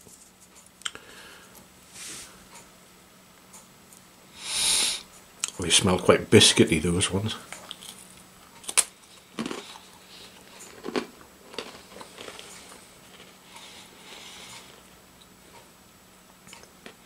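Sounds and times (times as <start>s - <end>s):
cracker crunching: 7.5s - 13.8s
soft chewing: 7.5s - 15.7s.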